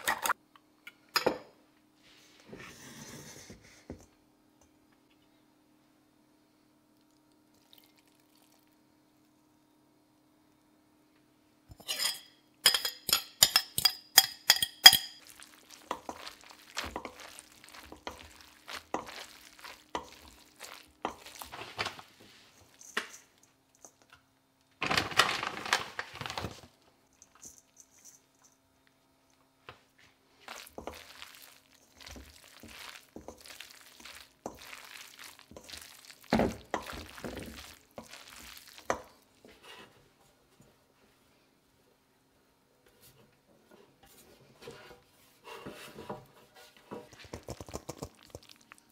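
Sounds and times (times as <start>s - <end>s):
fork clinking on ceramic bowl: 11.7s - 15.2s
wooden spoons stirring pasta: 11.7s - 24.2s, 24.8s - 28.6s, 30.0s - 40.2s, 43.8s - 48.9s
rustling: 30.1s - 39.3s.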